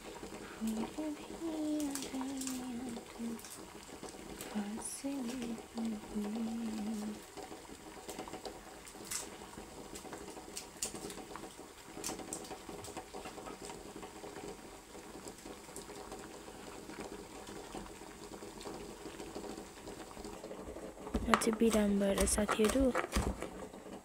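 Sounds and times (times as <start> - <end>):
pot bubbling: 0.0 - 24.0
onion skin crackling: 21.1 - 23.5.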